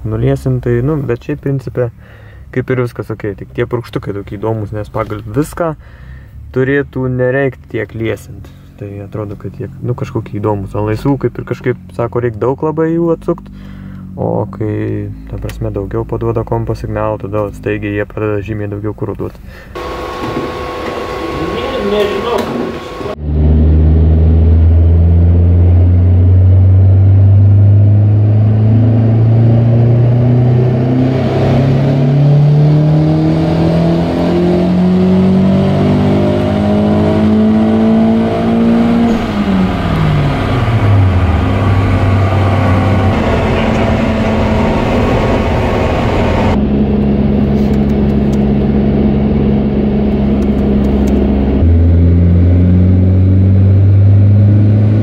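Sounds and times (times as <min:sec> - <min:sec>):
car engine revving on dynamometer: 0:19.8 - 0:55.0.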